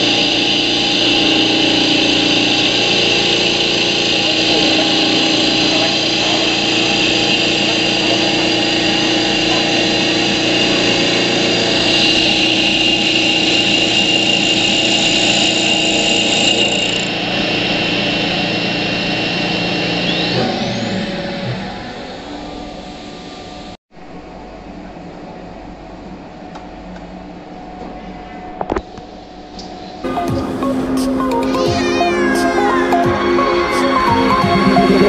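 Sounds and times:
cutter shaving spinning wood: 0.0 - 23.6
wood lathe motor whining: 0.0 - 23.8, 30.0 - 35.0.

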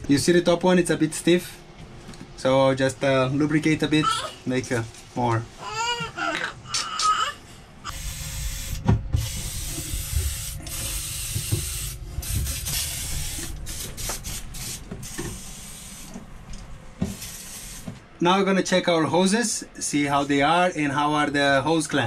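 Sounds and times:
aerosol can spraying: 7.9 - 16.2, 17.1 - 17.9.

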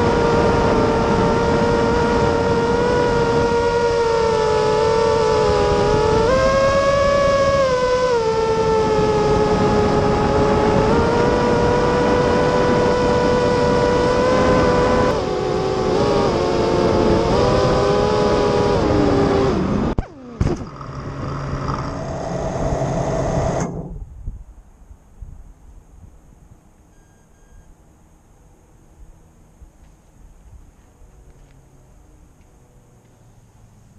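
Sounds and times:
model aircraft motor and propeller: 0.0 - 23.9
faint whir: 0.0 - 24.6.

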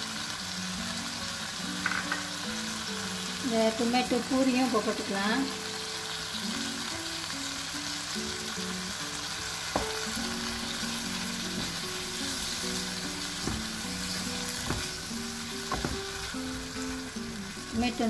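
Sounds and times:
background music: 0.0 - 18.0
tomatoes sizzling in a wok: 0.0 - 18.0
spatula knocking pan: 9.7 - 16.7.

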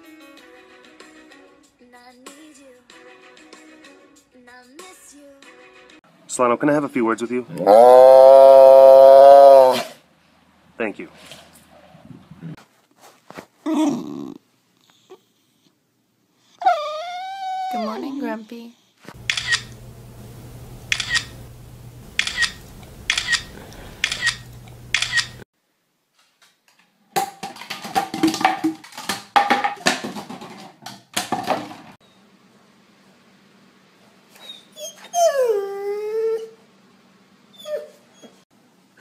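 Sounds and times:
dog howling: 7.6 - 9.9, 16.6 - 18.0
plastic bottles clattering on wood: 27.2 - 32.0.

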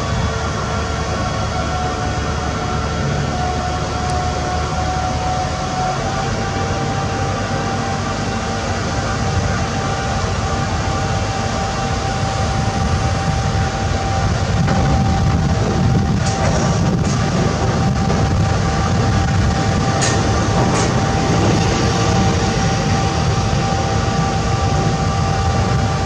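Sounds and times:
constant high whine: 0.0 - 26.0
crane engine rumble: 0.0 - 26.0.

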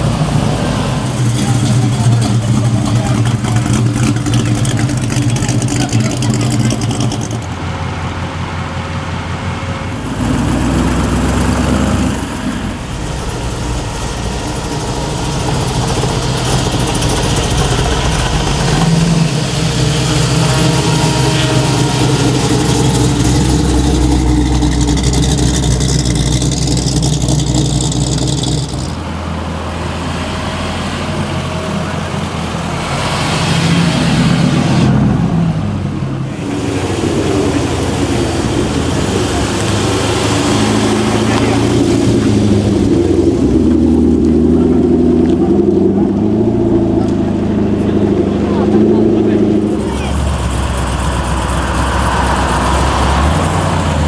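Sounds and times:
car engines rumbling: 0.0 - 54.0.

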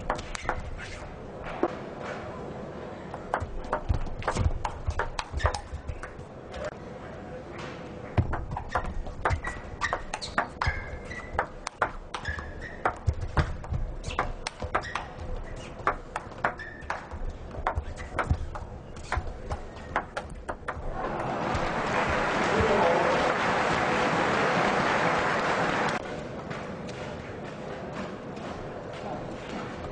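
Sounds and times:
shoes squeaking on floor: 0.2 - 1.2, 3.4 - 6.7, 8.2 - 20.9.

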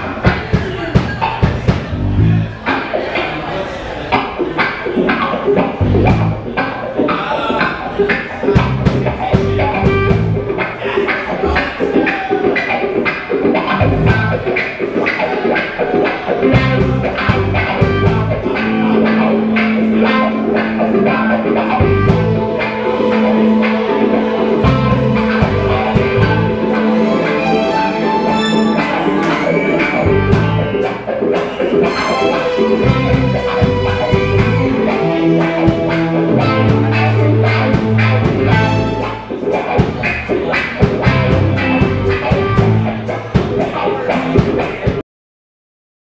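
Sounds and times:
steady drum beat: 0.0 - 2.9, 5.0 - 6.6, 8.1 - 12.7, 13.5 - 45.0
rock band playing: 0.0 - 3.3, 4.0 - 45.0
keyboard: 0.0 - 44.9
electric guitar: 4.1 - 45.0
held low note: 16.6 - 30.8.

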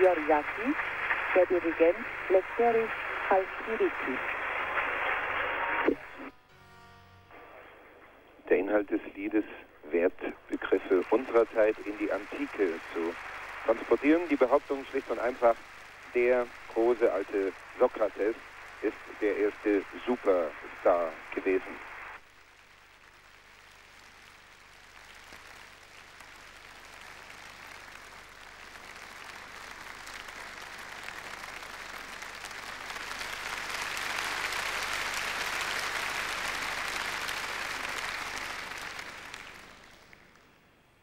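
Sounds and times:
audience applauding: 0.0 - 6.4, 10.4 - 40.6.

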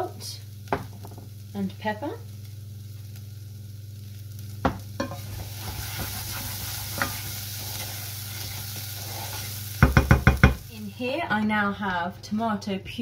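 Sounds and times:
onion and garlic sizzling: 0.0 - 11.7
steady low hum: 0.0 - 13.0
wooden spoon stirring: 5.6 - 10.6.

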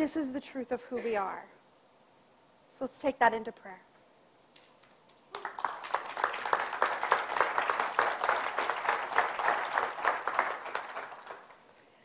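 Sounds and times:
audience applauding: 5.3 - 11.7.

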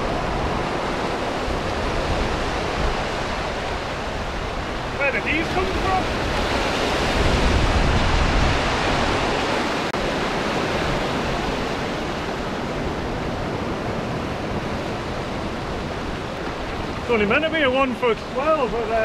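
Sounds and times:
waves breaking over rocks: 0.0 - 19.0.

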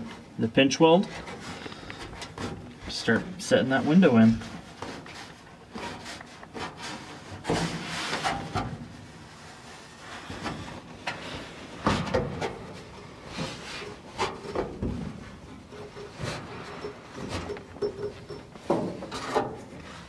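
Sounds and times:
thumps knocks and rubbing: 10.1 - 20.0.

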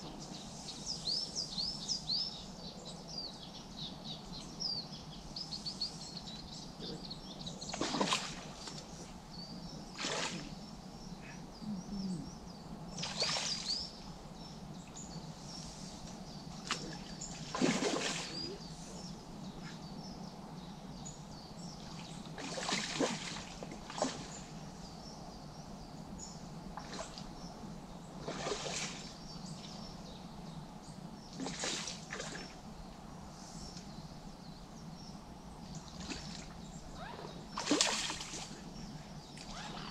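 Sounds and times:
birds singing: 0.0 - 39.9
fish splashing at surface: 17.5 - 18.4.

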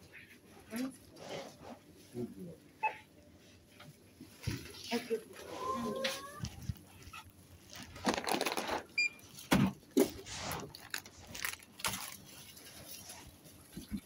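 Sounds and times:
shopping cart rattling: 7.7 - 8.9.

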